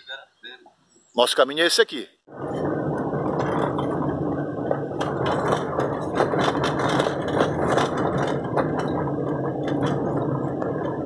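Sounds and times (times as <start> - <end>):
car engine hum: 2.3 - 11.0
rattles and clicks in car: 2.3 - 11.0
tyre noise on dirt road: 2.3 - 11.0.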